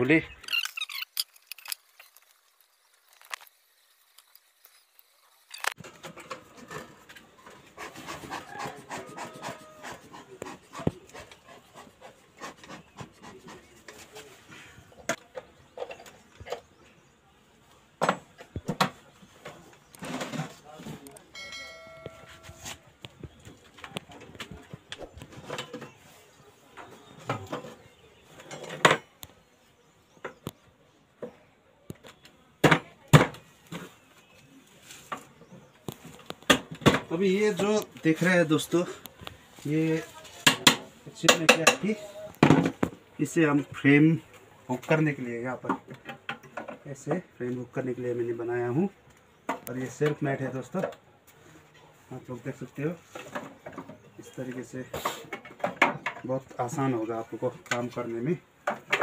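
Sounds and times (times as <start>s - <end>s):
brief squeak: 0.4s - 1.7s.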